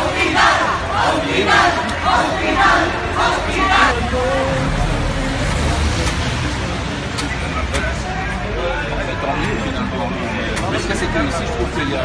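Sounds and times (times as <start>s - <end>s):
crowd chanting slogans: 0.0s - 8.0s.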